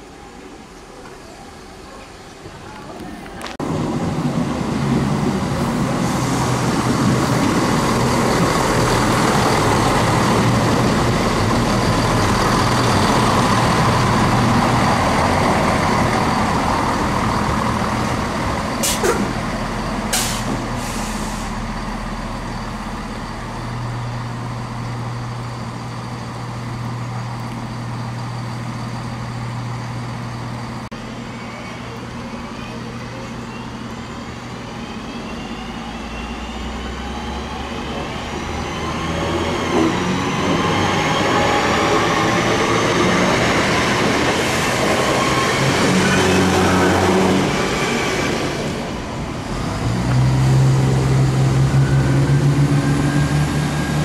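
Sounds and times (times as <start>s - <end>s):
train engine running: 0.0s - 54.0s
short sharp hisses: 18.8s - 19.3s, 20.1s - 21.6s.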